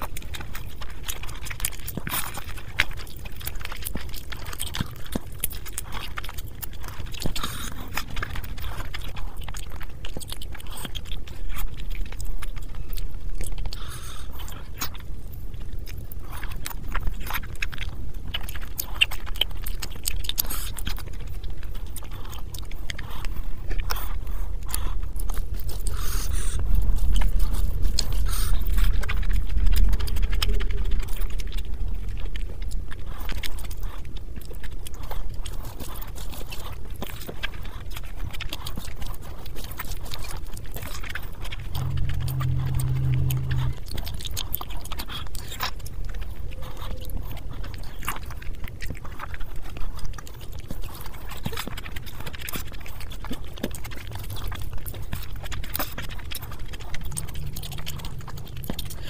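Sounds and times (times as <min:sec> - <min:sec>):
close chewing and mouth sounds: 0:00.0 - 0:59.0
low steady rumble: 0:20.9 - 0:49.9, 0:53.2 - 0:59.0.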